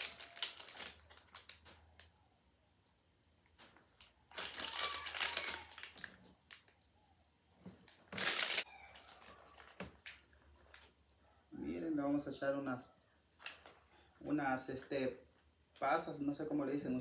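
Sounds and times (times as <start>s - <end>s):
plastic wrapper crinkling: 0.0s - 2.1s, 3.7s - 6.8s, 7.9s - 10.9s, 13.3s - 13.8s.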